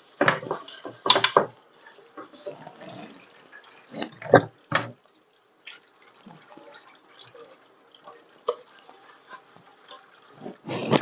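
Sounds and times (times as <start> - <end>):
water splashing and dripping: 0.0 - 11.0.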